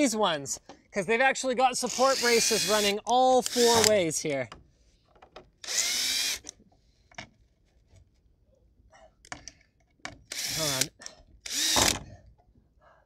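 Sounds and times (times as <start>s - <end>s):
cordless drill whining: 1.9s - 4.0s, 5.6s - 6.5s, 10.3s - 12.0s
drill bit clicks and knocks on wood: 3.4s - 4.0s, 9.3s - 10.5s, 11.5s - 12.0s.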